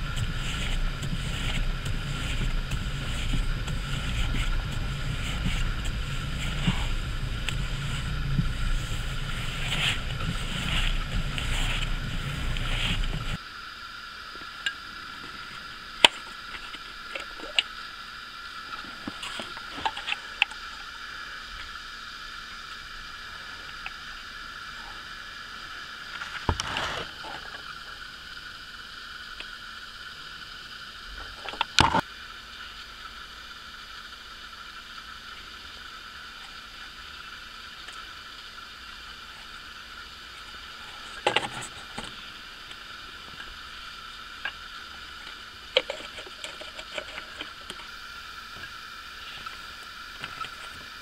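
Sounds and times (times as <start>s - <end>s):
car engine running: 0.0s - 13.4s.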